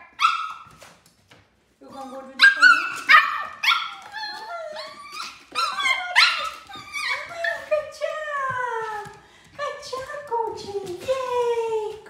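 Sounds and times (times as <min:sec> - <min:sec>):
puppy yipping: 0:00.0 - 0:00.8, 0:02.0 - 0:07.7
puppy whining: 0:01.9 - 0:07.8.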